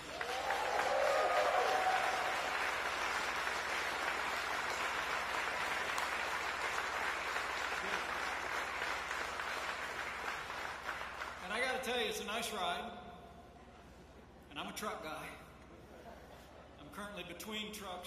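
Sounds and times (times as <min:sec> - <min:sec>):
audience applauding: 0:00.0 - 0:11.7.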